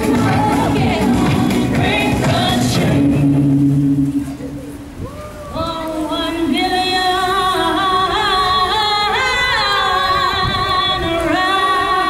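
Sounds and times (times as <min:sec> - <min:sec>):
backing music: 0:00.0 - 0:05.0
woman singing with vibrato: 0:00.0 - 0:12.0.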